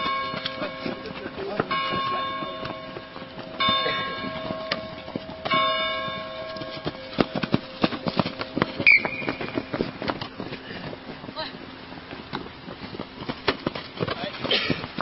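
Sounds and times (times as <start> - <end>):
bell tolling: 0.0 - 8.5
feet running on grass: 0.0 - 15.0.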